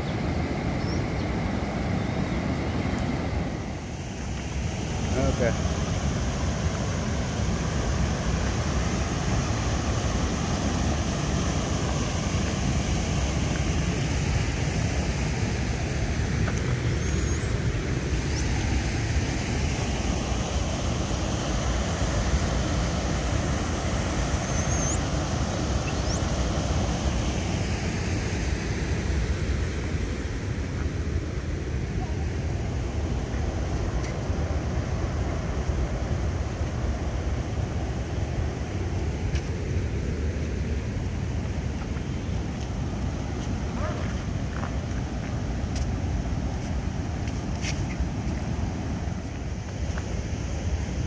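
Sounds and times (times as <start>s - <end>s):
sea surf: 0.0s - 51.0s
faint high rising whistles: 16.9s - 17.6s, 18.2s - 18.7s, 24.3s - 26.5s.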